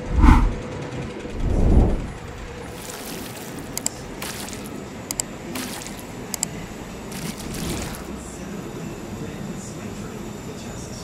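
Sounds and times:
soft whooshes: 0.0 - 0.6
low background hum: 0.0 - 11.0.

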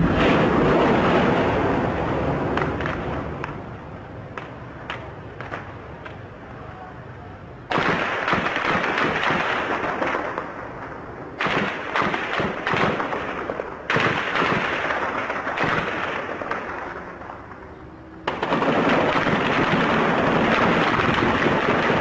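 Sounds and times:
loud bangs: 0.0 - 3.6, 18.2 - 22.0
rapid gunshots echoing: 7.7 - 10.6, 11.4 - 17.4, 18.3 - 22.0.

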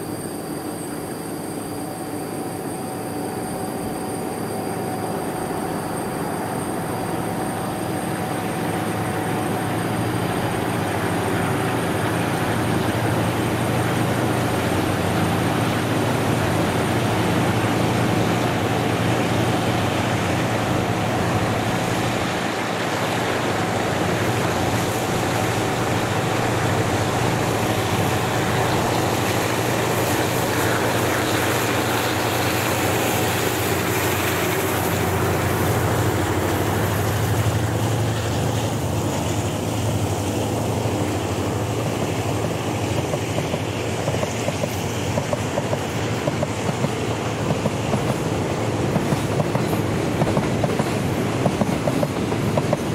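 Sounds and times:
locomotive engine humming: 0.0 - 52.9
train wheels clattering on rails: 7.6 - 52.9.

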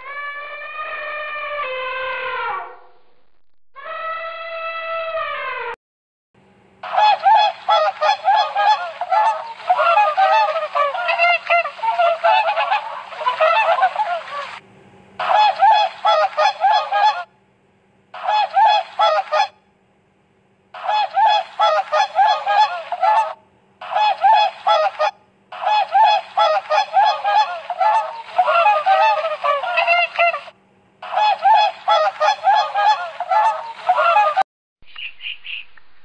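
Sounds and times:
faint low hum: 6.4 - 34.4
waterfowl honking: 6.9 - 14.6.

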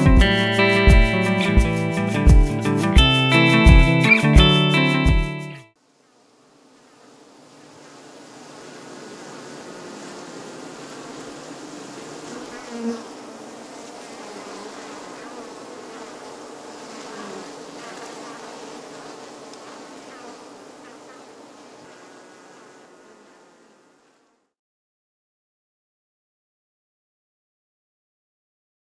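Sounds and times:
honeybees buzzing: 5.8 - 24.4.

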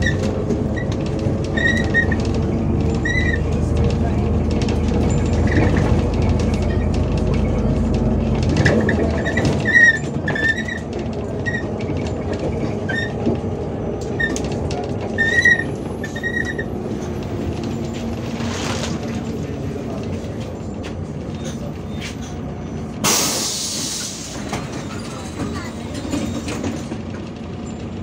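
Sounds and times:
high squeaks: 0.0 - 3.6, 8.7 - 13.3, 14.1 - 18.6
bus engine and road rumble: 0.0 - 28.0.

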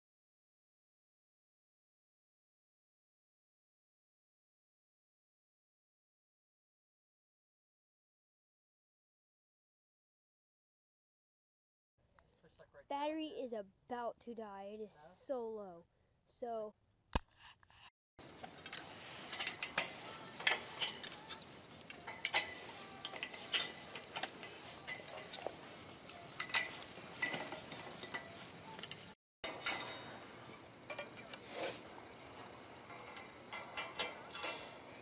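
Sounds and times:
metal springs clinking and rattling: 18.2 - 35.0.

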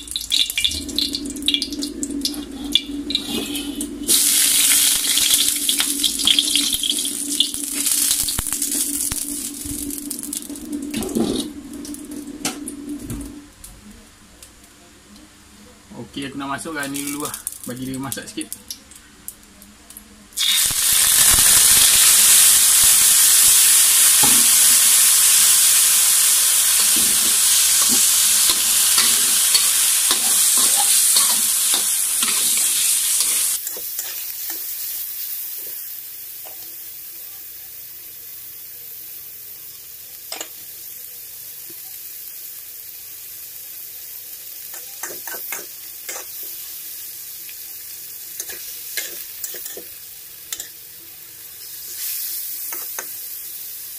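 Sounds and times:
chicken sizzling in hot oil: 0.0 - 13.2, 16.5 - 18.6, 20.4 - 53.9.

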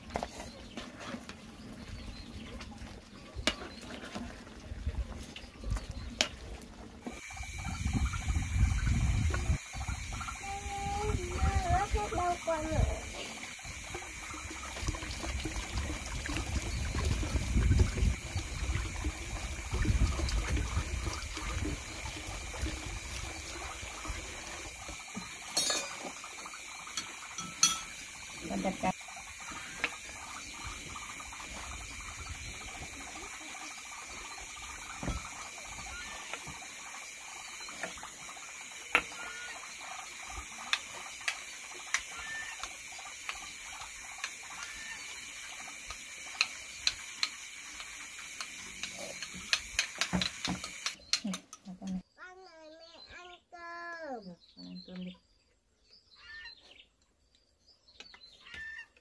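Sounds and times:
water splashing into plastic tub: 7.1 - 27.3
utensils clinking on ceramic bowls: 25.5 - 26.0, 26.9 - 28.1.

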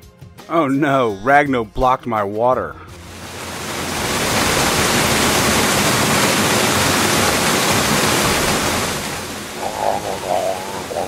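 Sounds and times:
gushing water jet: 3.0 - 11.0.

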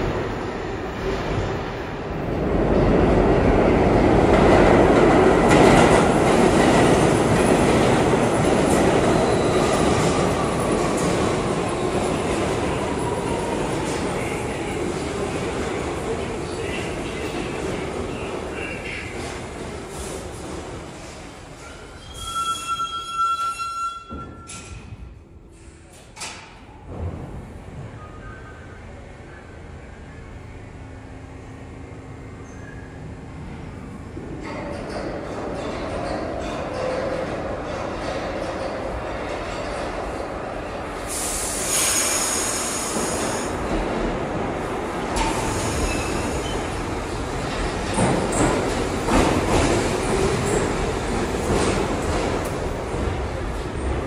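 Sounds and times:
subway train rolling: 0.0 - 54.0
train wheels squealing on rails: 8.6 - 14.6, 21.6 - 24.9, 32.4 - 33.1, 41.1 - 43.6, 45.2 - 46.9
train wheels squealing: 9.0 - 10.2, 21.6 - 24.8, 32.4 - 33.0, 45.3 - 46.8.

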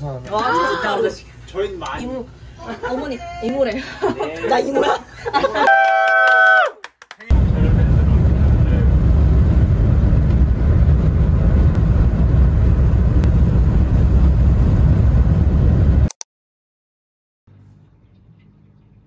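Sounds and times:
car cabin road and engine rumble: 7.3 - 16.0.

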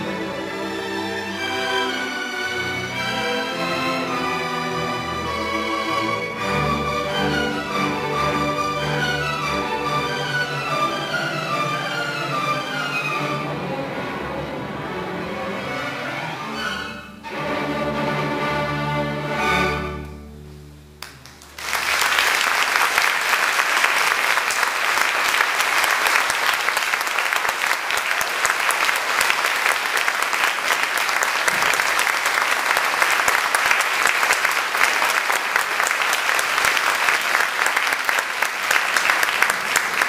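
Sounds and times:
audience applause: 21.0 - 40.0.

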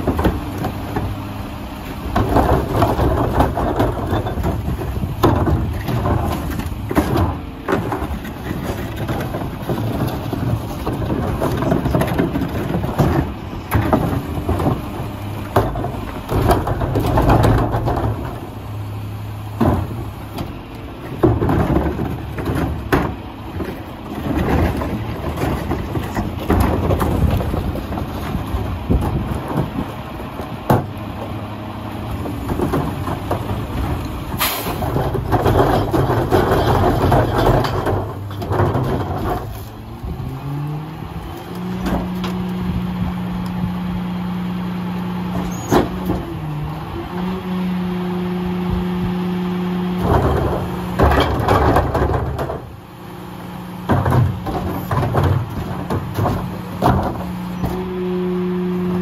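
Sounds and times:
garbage truck diesel engine: 0.0 - 59.0
trash dumped into hopper: 2.0 - 40.7.

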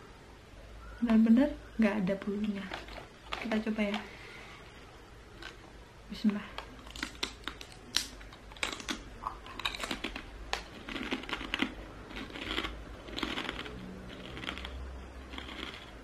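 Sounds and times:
teeth biting crispy skin: 6.8 - 15.9
crunchy chewing of fried chicken: 6.8 - 16.0.

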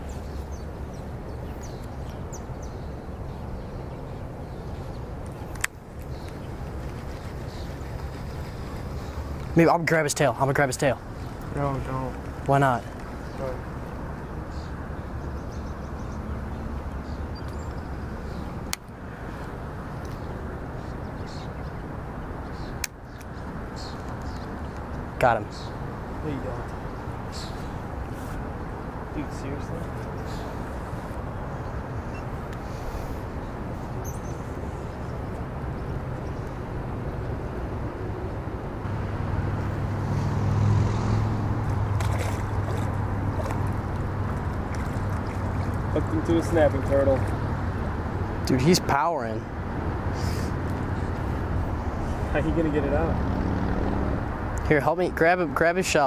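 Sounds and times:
wind buffeting microphone: 41.2 - 48.4
turtle splashing in water: 41.6 - 46.0.

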